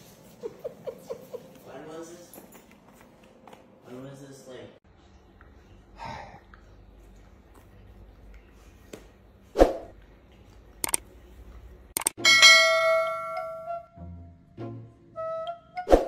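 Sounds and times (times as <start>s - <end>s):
quick clicks: 10.8s - 11.0s, 12.0s - 12.2s
bell chime: 12.2s - 13.8s.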